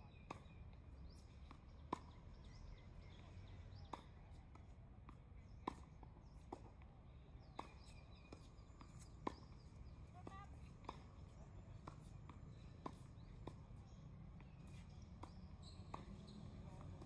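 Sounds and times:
faint birdsong: 0:00.0 - 0:17.0
tennis ball bouncing: 0:01.8 - 0:02.1, 0:03.9 - 0:04.6, 0:05.6 - 0:06.8, 0:07.6 - 0:17.0.

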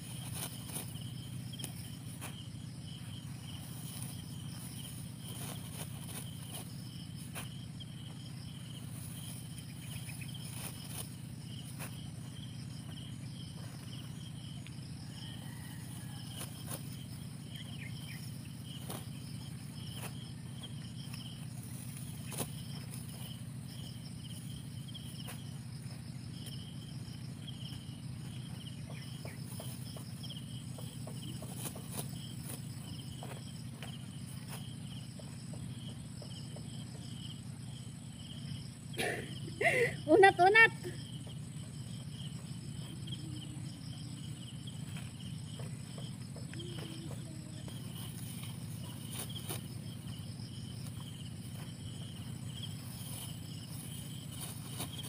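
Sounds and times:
insects chirping: 0:00.0 - 0:55.0
dry stalks rustling and snapping: 0:52.8 - 0:55.0.

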